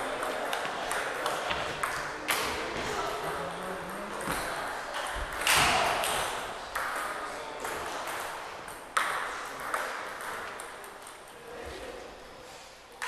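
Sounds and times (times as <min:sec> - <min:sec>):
table tennis balls clicking: 0:03.2 - 0:11.4.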